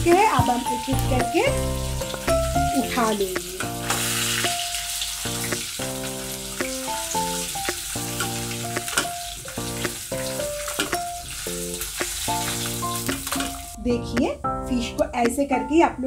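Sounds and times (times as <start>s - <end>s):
fish sizzling in hot oil: 0.0s - 13.8s
spatula clicking against pan: 7.6s - 9.2s.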